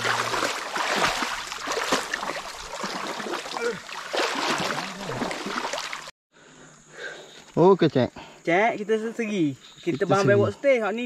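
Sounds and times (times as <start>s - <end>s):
water splashing and trickling: 0.0s - 6.1s.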